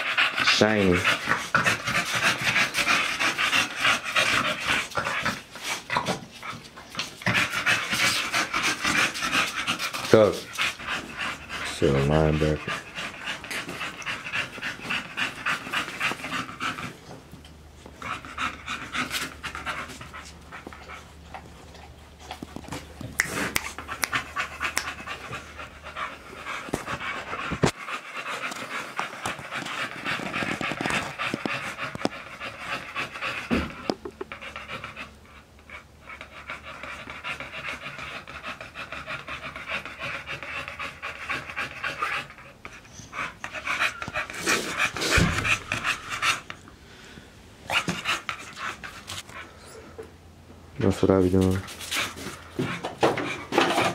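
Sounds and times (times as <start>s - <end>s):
dogs panting rapidly: 0.0s - 46.6s, 47.7s - 49.7s, 50.9s - 53.9s.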